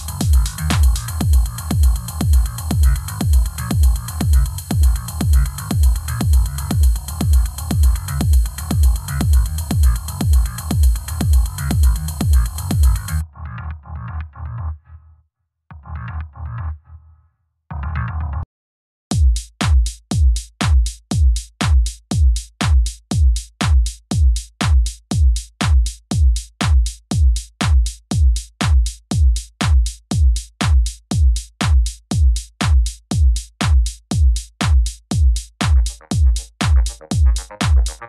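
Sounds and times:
drum machine kick drum: 0.0 - 13.2, 19.1 - 38.0
electronic music: 0.0 - 13.3, 35.8 - 38.0.

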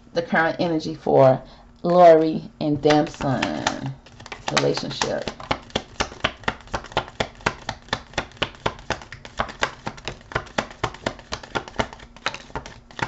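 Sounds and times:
cards being shuffled: 2.2 - 13.0.

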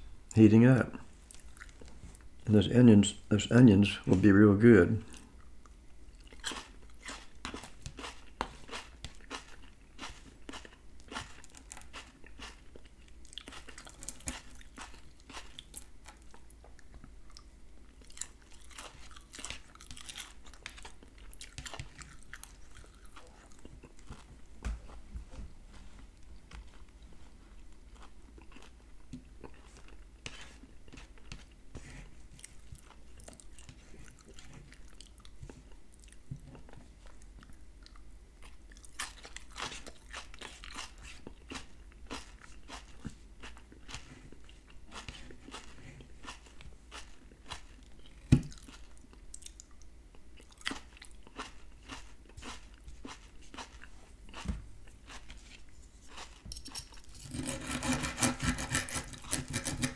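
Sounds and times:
chewing food: 1.2 - 2.3, 5.1 - 25.0, 26.2 - 31.6, 32.2 - 57.3
fork clicking and scraping plate: 56.5 - 59.9.

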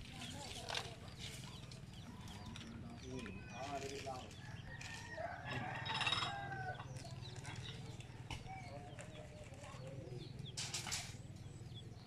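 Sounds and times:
chickens clucking: 0.3 - 12.0
rooster crowing: 4.4 - 7.0.

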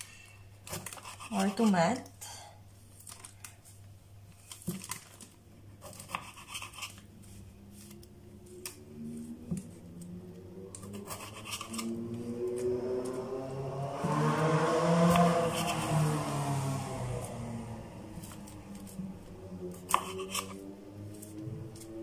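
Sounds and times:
faint rising tones: 7.2 - 22.0
knife slicing on cutting board: 19.9 - 20.6.

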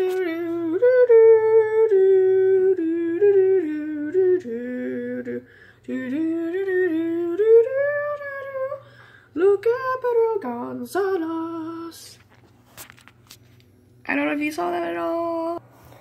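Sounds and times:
person humming: 0.0 - 9.5.

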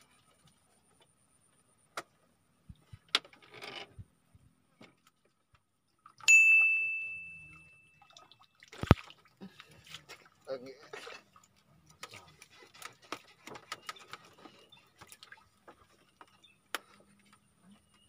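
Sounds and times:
bell-like ding: 6.3 - 8.0.

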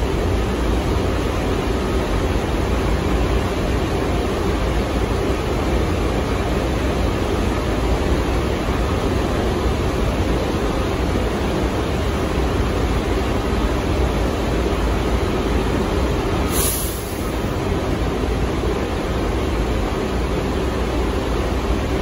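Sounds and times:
subway train rumbling: 0.0 - 22.0
short high hiss: 16.5 - 17.5.

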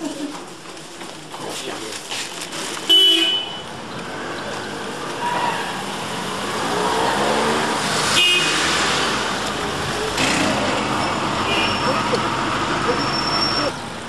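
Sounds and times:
busy street traffic: 0.0 - 14.0
car horn toot: 2.9 - 3.6, 8.2 - 8.7, 11.4 - 11.9.

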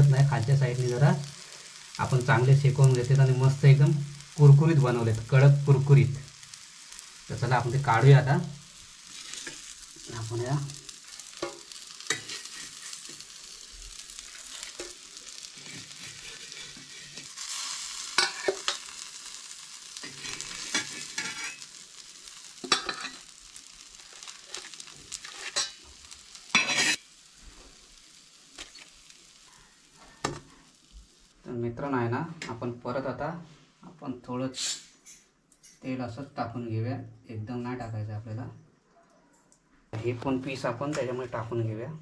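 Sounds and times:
fish sizzling in oil: 0.0 - 31.4
metal spatula scraping griddle: 9.1 - 9.7, 11.1 - 19.0, 20.0 - 21.8, 22.6 - 23.3, 24.1 - 25.8, 26.5 - 27.7.

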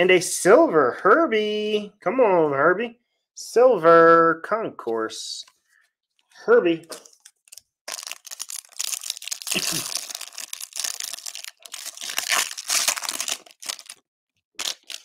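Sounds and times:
foil wrapper crinkling and tearing: 6.9 - 14.0, 14.6 - 15.0.

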